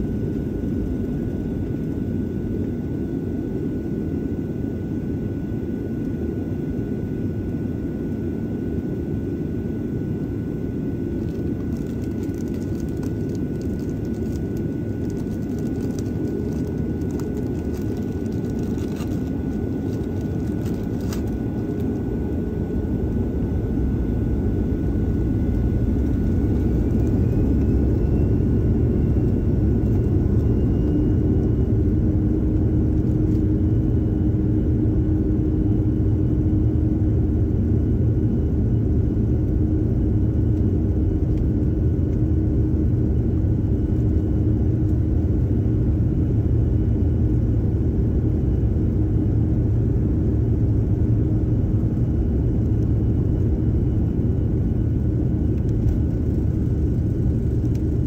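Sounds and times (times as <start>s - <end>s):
jet engines rumbling in cabin: 0.0s - 58.0s
rising engine whine: 16.0s - 58.0s.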